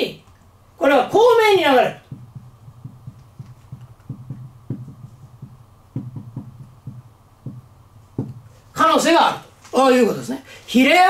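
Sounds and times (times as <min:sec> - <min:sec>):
steady low hum: 0:00.0 - 0:10.8
marker pen tapping on whiteboard: 0:02.0 - 0:08.6.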